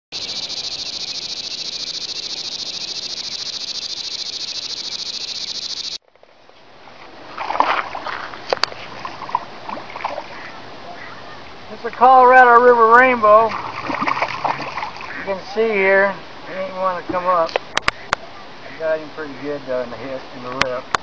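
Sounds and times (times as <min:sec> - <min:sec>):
high-pitched insect chorus: 0:00.1 - 0:06.0
fish splashing at the surface: 0:07.1 - 0:10.6, 0:13.4 - 0:15.3.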